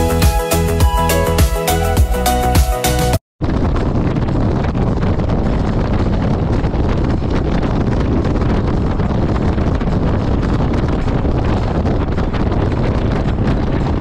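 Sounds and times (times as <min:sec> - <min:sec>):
wind buffeting microphone: 0:03.4 - 0:14.0.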